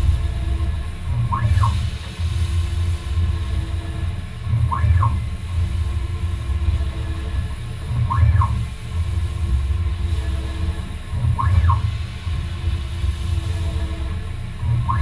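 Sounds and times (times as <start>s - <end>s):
lathe machine drone: 0.0s - 15.0s
rising and falling whine: 6.5s - 15.0s.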